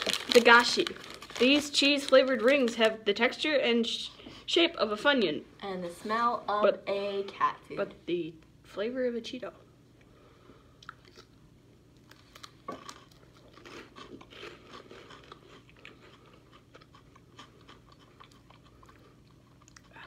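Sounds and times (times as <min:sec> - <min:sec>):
snack rings crunching: 0:10.8 - 0:20.0.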